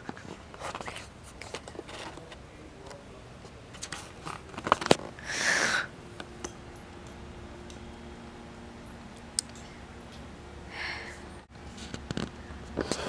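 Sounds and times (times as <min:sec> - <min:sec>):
faint steady hum: 0:00.0 - 0:13.0
camera handling clicks and rustles: 0:03.8 - 0:05.1.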